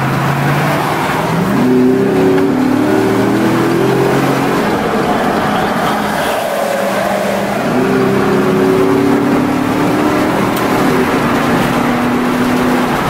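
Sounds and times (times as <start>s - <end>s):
pickup engine accelerating: 0.0s - 13.0s
wind and road noise: 0.0s - 13.0s.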